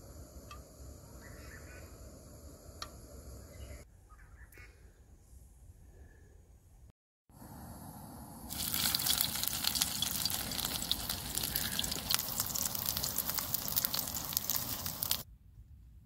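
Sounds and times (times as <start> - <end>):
food sizzling in a pan: 8.5 - 15.2.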